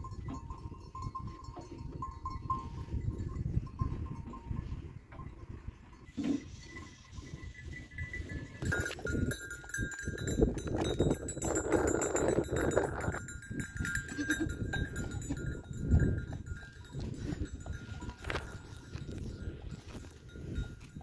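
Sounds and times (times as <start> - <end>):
goat bells jingling: 0.0 - 21.0
goat bleating: 13.9 - 15.5.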